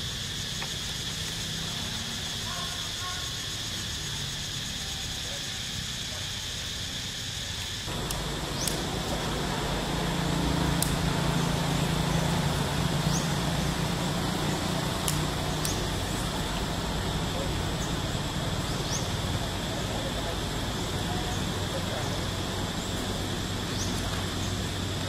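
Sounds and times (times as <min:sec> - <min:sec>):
high-pitched insect drone: 0:00.0 - 0:25.0
low hum: 0:07.9 - 0:25.0.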